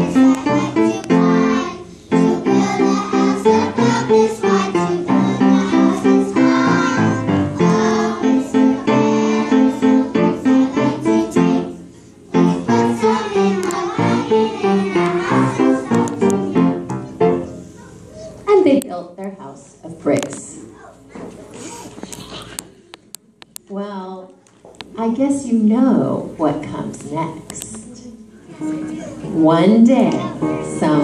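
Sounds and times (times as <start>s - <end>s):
children singing: 0.0s - 16.8s
instrumental accompaniment: 0.0s - 17.8s.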